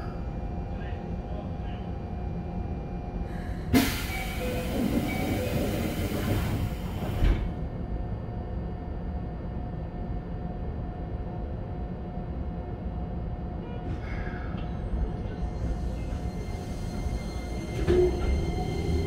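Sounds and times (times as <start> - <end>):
train equipment hum and whine: 0.0 - 19.0
train doors sliding with hiss: 3.7 - 7.5.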